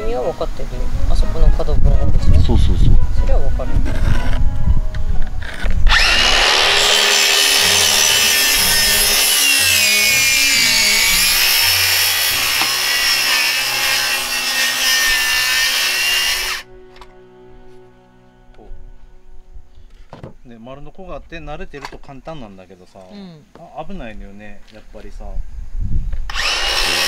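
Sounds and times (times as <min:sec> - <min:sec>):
circular saw cutting board: 0:05.9 - 0:16.7, 0:26.3 - 0:27.0.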